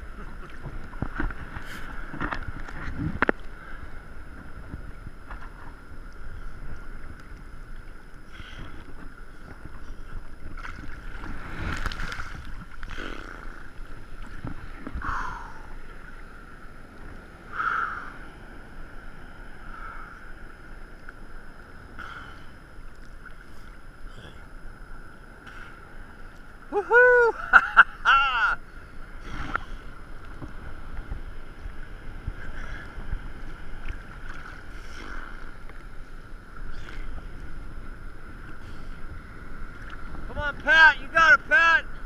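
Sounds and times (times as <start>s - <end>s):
sea water sloshing and lapping: 0.0s - 26.7s, 27.7s - 40.7s
wind: 0.0s - 42.0s
water splashes: 6.6s - 16.3s, 27.7s - 41.0s.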